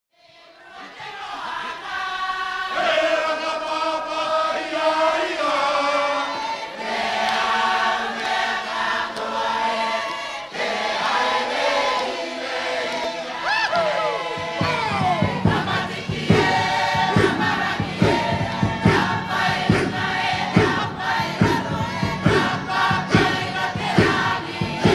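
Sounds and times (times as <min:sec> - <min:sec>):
congregation singing in harmony: 0:00.2 - 0:24.9
people shouting: 0:13.3 - 0:24.9
drum beating a rhythm: 0:14.2 - 0:24.9.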